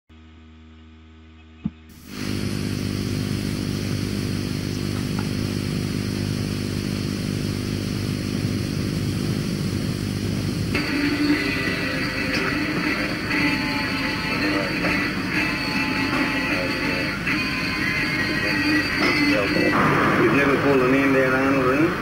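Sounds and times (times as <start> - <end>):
faint hum: 0.1 - 22.0
motorcycle engine running: 1.7 - 13.8
guitar music: 10.7 - 22.0.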